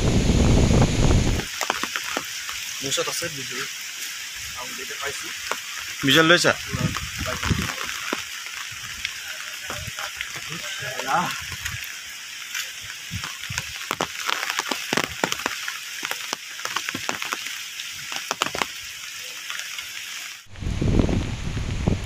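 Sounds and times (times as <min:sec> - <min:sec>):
wind buffeting microphone: 0:00.0 - 0:01.5, 0:06.5 - 0:07.9, 0:20.5 - 0:22.0
rain falling: 0:00.0 - 0:22.0.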